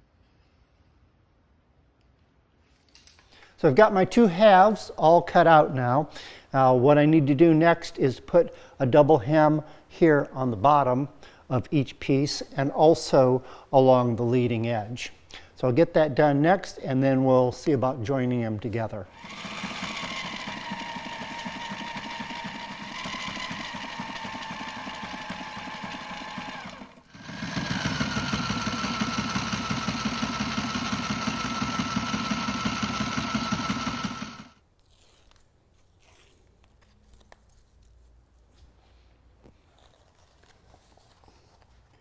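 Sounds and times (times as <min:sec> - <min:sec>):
sewing machine stitching: 0:19.1 - 0:34.6.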